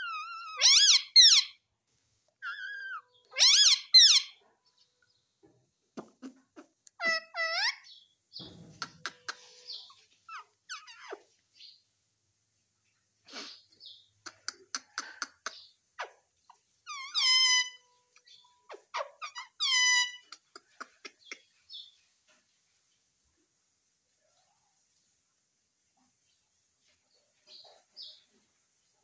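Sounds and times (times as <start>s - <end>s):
parakeet high gliding calls: 0.0s - 1.6s, 2.4s - 4.4s, 7.0s - 8.0s, 9.6s - 11.2s, 16.9s - 17.8s, 18.7s - 20.3s.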